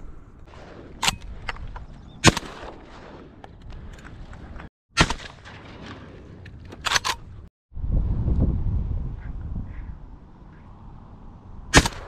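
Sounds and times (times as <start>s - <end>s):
shotgun shot: 2.2s - 3.3s, 5.0s - 6.1s, 11.7s - 12.0s.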